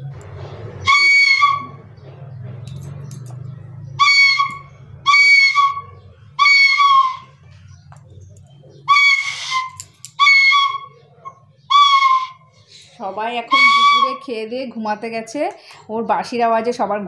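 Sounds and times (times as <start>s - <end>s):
bamboo flute blasts: 0.8s - 1.8s, 8.9s - 10.9s, 11.7s - 12.5s, 13.5s - 14.3s.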